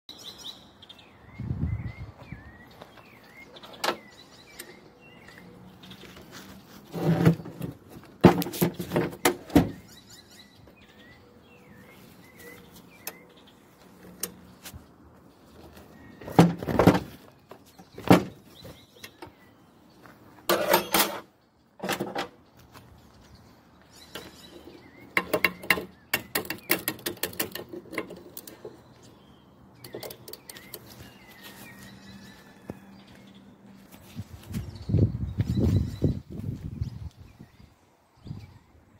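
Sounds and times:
metal tool clinks and knocks: 20.5s - 21.2s.

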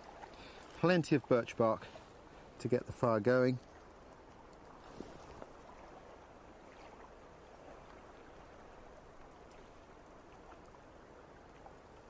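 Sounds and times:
steady outdoor hiss: 0.0s - 12.0s
faint ticks: 3.5s - 5.5s.

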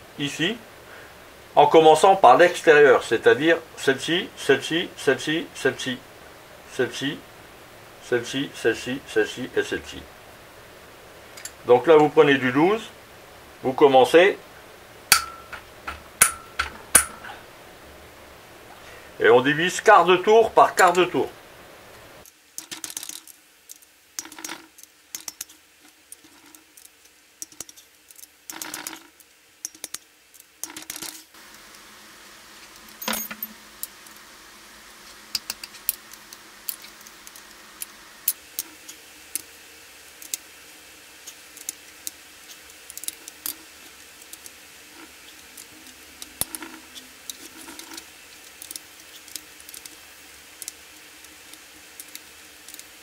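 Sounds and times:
ringing metal clink: 15.1s - 15.6s, 32.9s - 33.6s
metal hand tools clicking: 26.2s - 31.2s.

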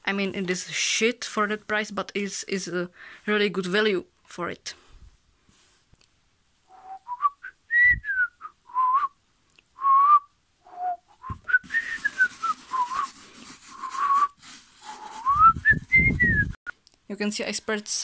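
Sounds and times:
person whistling: 6.7s - 9.2s, 9.8s - 16.6s
hand spreading dirt on carpet: 11.6s - 15.9s.

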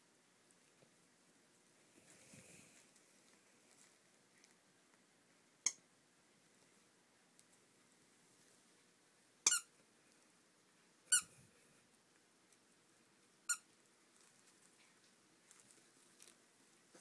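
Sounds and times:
toy squeaker squeaking: 9.4s - 9.7s, 11.1s - 11.3s.

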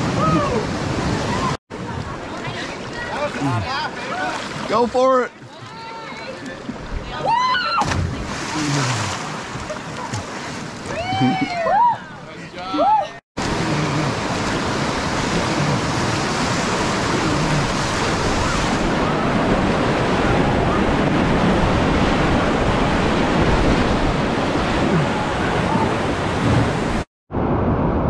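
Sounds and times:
water splashing around boat: 0.0s - 11.8s, 13.4s - 27.1s
river rapids rushing: 13.4s - 27.0s.

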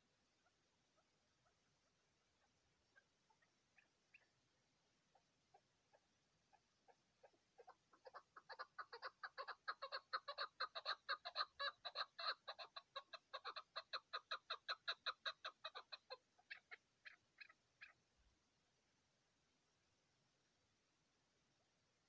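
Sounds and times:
partridge clucking calls: 2.4s - 4.4s, 5.1s - 18.0s.

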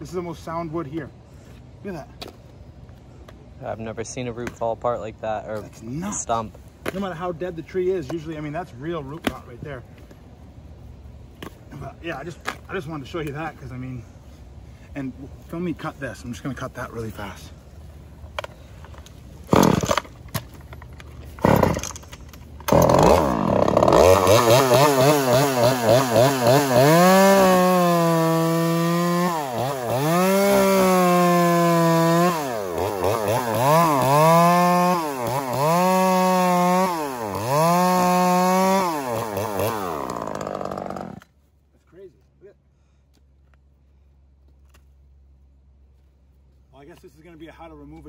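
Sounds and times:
chainsaw cutting wood: 19.4s - 20.5s, 21.2s - 41.3s.

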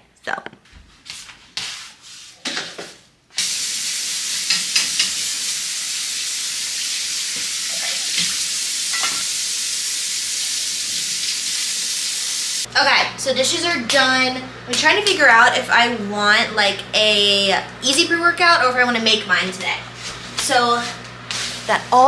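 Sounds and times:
faucet running into sink: 3.4s - 12.7s
dishes clinking: 7.7s - 9.4s.

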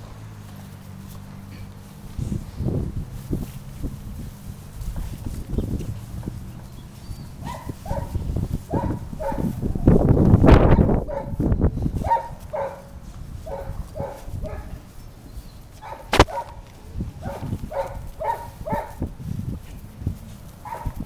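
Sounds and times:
puppy yapping: 15.8s - 16.6s
sharp click: 16.1s - 16.4s.

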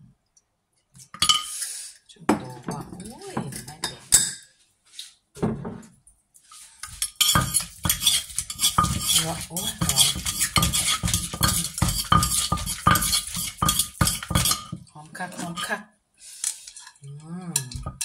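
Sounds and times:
metal spoon clinking: 6.8s - 14.8s
wooden pestle pounding in a mortar: 7.3s - 14.8s.

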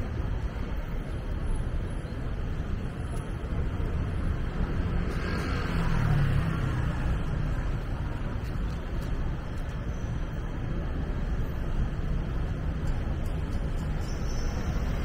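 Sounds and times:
rumble of passing traffic: 0.0s - 15.0s.

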